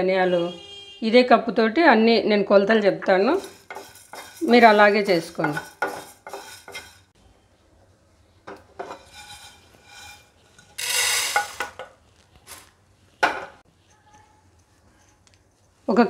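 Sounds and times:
pan and plate clattering: 0:03.3 - 0:07.1, 0:08.5 - 0:11.9
seeds pouring onto a plate: 0:10.8 - 0:11.6.

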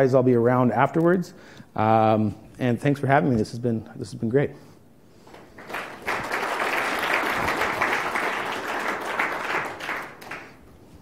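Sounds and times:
audience applauding: 0:05.3 - 0:10.7.

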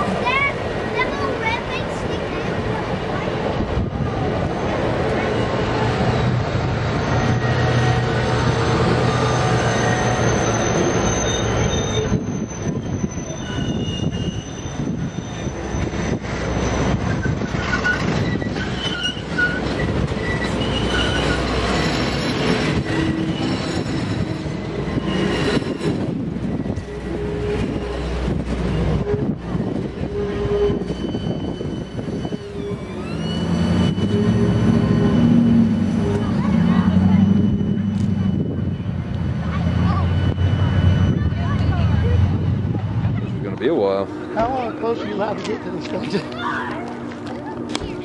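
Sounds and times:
train wheels rumbling on rail: 0:00.0 - 0:48.0
high wheel squeals: 0:04.4 - 0:48.0
rail-joint clatter: 0:04.9 - 0:42.0.

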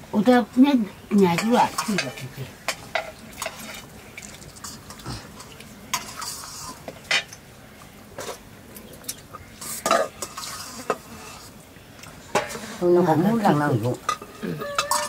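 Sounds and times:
metal spoons scraping steel plates: 0:14.0 - 0:15.0.

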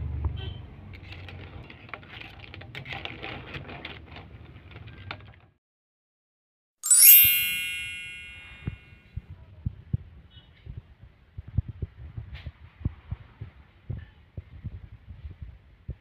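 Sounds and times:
bright chime: 0:06.8 - 0:08.8.

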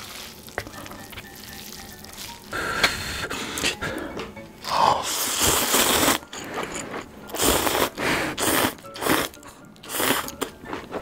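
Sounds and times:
person slurping noodles: 0:04.6 - 0:10.8.

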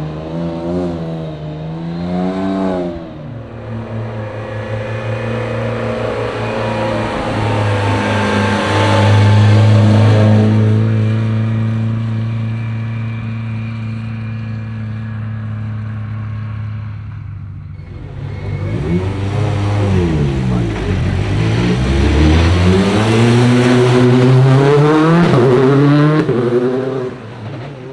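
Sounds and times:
engine revving: 0:00.0 - 0:27.9
rally car engine running: 0:02.9 - 0:27.9.

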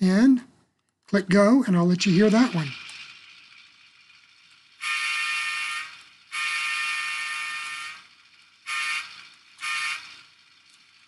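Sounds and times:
locomotive air horn blasts: 0:04.8 - 0:08.0, 0:08.7 - 0:10.1.

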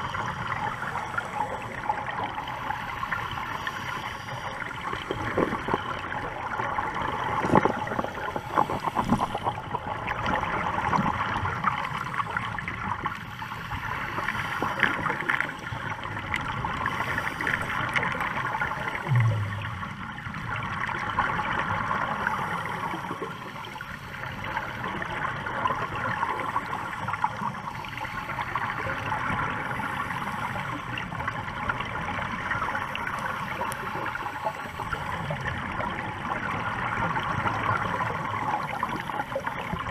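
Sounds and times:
underwater crackling hiss: 0:00.0 - 0:20.4, 0:21.5 - 0:31.3
exhaled air bubbles gurgling: 0:00.0 - 0:39.9.

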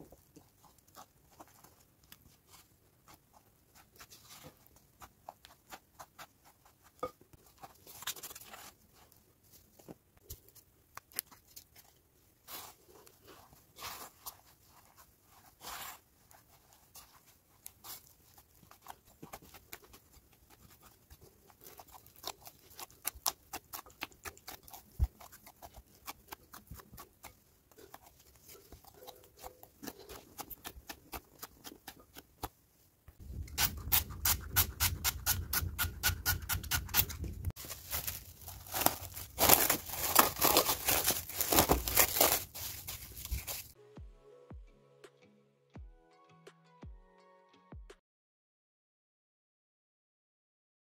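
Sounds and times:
hands kneading sticky dough: 0:00.0 - 0:43.8
plastic cling film crinkling: 0:37.1 - 0:43.8.

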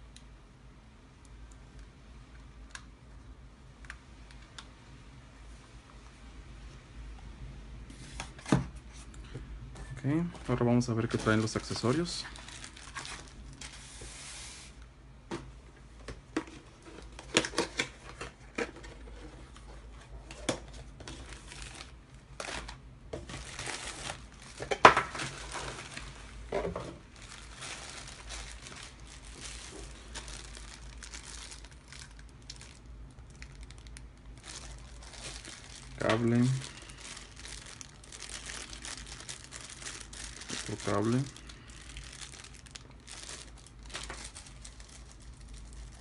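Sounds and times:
plastic bags crinkling: 0:10.4 - 0:14.4, 0:20.8 - 0:46.0.

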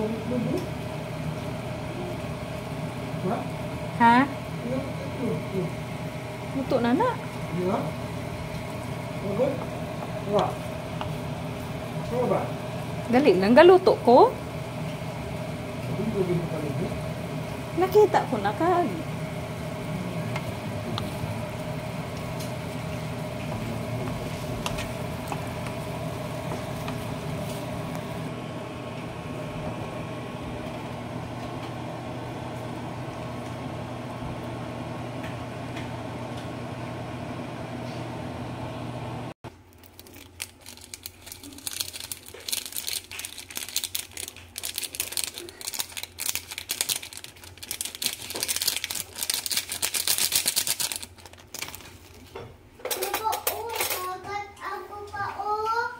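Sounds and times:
mechanical hum: 0:00.0 - 0:55.9
plastic packet crinkling: 0:39.5 - 0:52.3.

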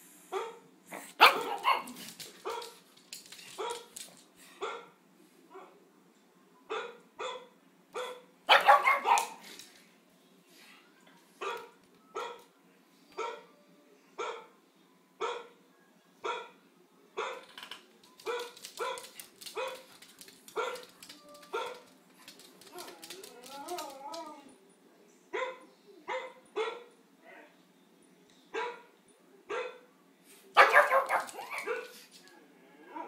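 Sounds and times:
dog barking: 0:00.3 - 0:02.8, 0:06.7 - 0:09.4, 0:25.4 - 0:26.9, 0:29.5 - 0:29.8, 0:30.6 - 0:31.9.

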